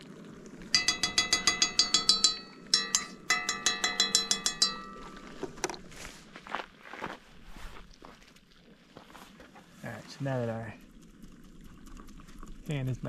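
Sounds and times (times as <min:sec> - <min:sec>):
fork tapping metal: 0:00.7 - 0:05.8.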